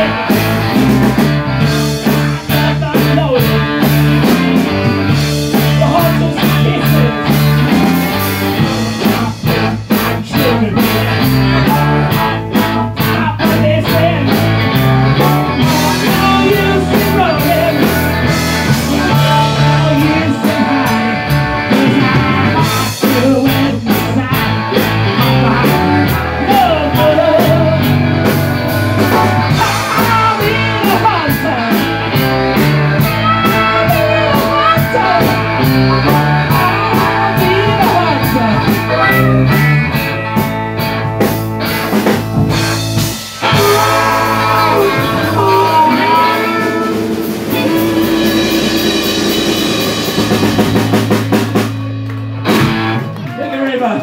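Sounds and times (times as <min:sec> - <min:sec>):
live rock band playing: 0:00.0 - 0:54.0
man singing into microphone: 0:02.5 - 0:03.6, 0:05.5 - 0:07.5, 0:10.2 - 0:14.4, 0:15.5 - 0:18.0, 0:18.6 - 0:22.3, 0:22.9 - 0:24.6, 0:25.2 - 0:28.0, 0:29.5 - 0:31.8, 0:33.0 - 0:35.5, 0:36.4 - 0:39.5, 0:43.4 - 0:47.0.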